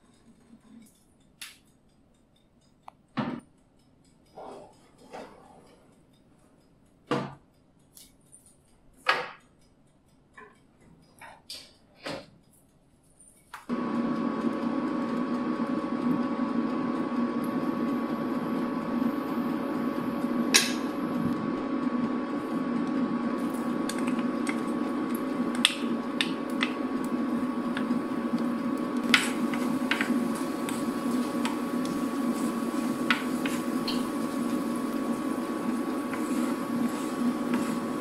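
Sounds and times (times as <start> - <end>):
garlic sizzling in oil: 13.7 - 38.0
steady hum: 13.7 - 38.0
wooden spoon clicking on pan: 29.0 - 38.0.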